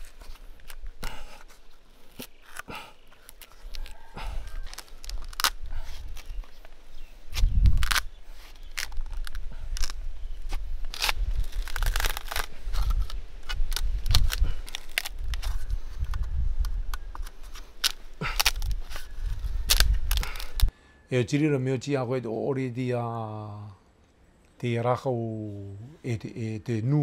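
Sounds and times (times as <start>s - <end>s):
bark crackling and tearing: 0.0s - 20.7s.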